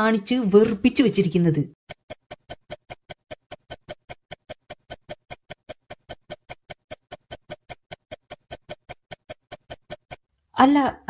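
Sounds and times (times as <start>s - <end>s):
fast clock ticking: 1.0s - 10.9s.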